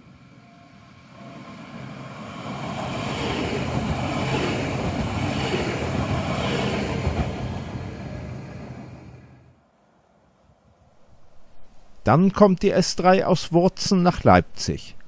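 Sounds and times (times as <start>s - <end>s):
train passing at speed: 0.0s - 10.2s.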